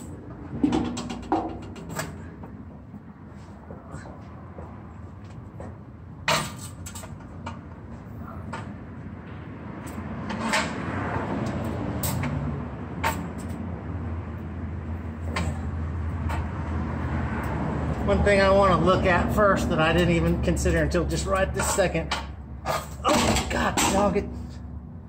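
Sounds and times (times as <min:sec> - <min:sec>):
metal exhaust pipe clanking: 0:00.0 - 0:02.8, 0:06.2 - 0:08.9, 0:15.2 - 0:16.6, 0:19.6 - 0:24.6.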